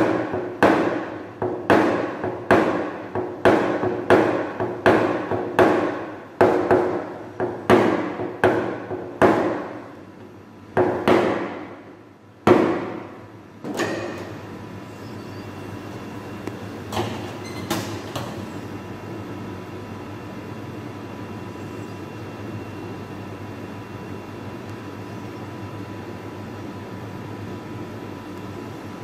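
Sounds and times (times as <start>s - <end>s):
hammer tapping sheet metal: 0.0s - 9.8s.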